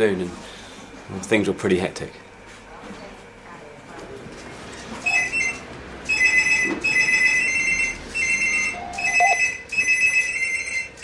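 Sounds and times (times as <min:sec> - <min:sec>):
desk telephone ringing: 0:05.0 - 0:11.0.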